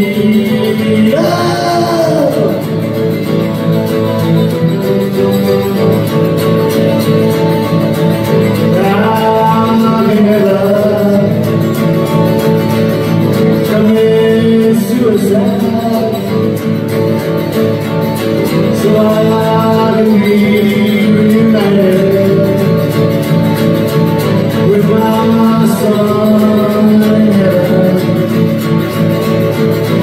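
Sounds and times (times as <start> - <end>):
man singing: 0.0 - 3.4, 8.2 - 16.9, 18.4 - 23.3, 24.2 - 29.1
acoustic guitar playing: 0.0 - 30.0.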